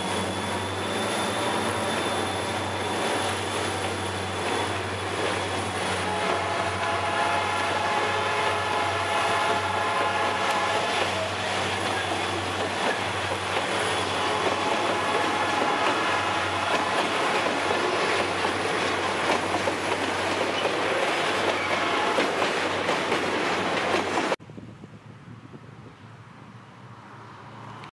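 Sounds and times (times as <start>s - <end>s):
high wheel squeal: 0.0s - 6.4s, 10.9s - 18.4s
steel wheels clattering over rail joints: 10.9s - 24.4s.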